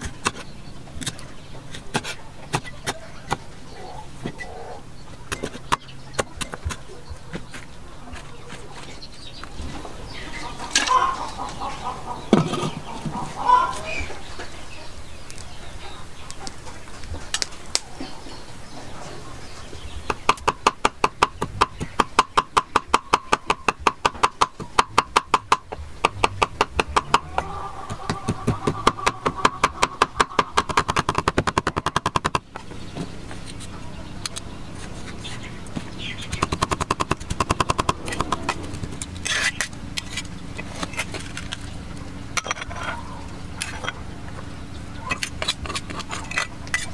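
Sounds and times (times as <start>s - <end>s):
cleaver chopping on wooden block: 20.1s - 32.7s, 35.7s - 38.7s.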